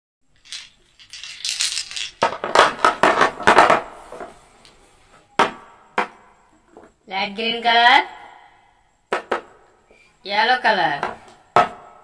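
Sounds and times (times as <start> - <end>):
paint bottles clattering: 0.3 - 4.2.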